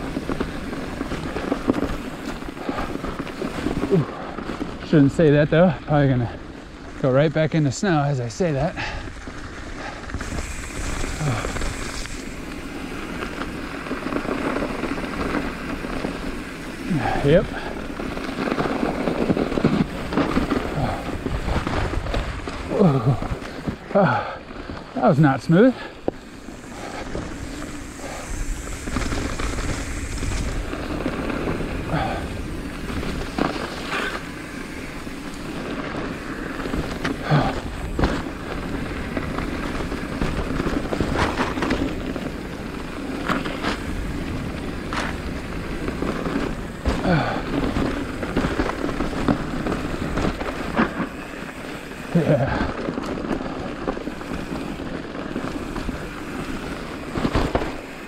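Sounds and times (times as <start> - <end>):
bike jolting and rattling: 0.0 - 58.0
bike tyres crunching snow: 0.0 - 58.0
wind rumble on microphone: 26.0 - 51.5.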